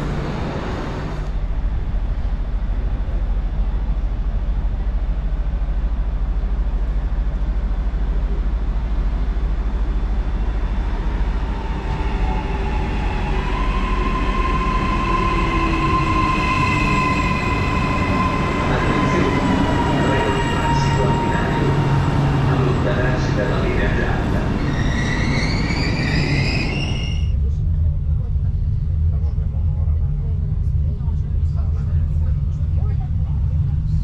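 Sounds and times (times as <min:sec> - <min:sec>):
high train whine: 0:00.0 - 0:34.0
electric train running: 0:08.5 - 0:27.3.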